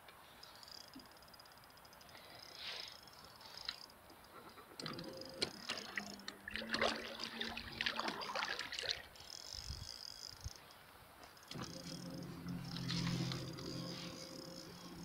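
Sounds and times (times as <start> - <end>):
low steady hum: 4.3 - 9.9, 11.4 - 15.0
water splashing and trickling: 4.8 - 9.8.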